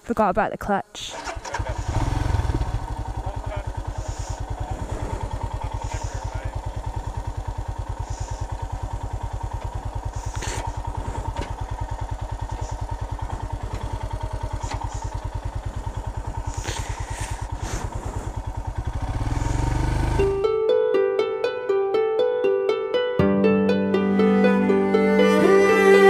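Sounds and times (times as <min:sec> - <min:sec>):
motorcycle engine idling: 0:01.1 - 0:21.7.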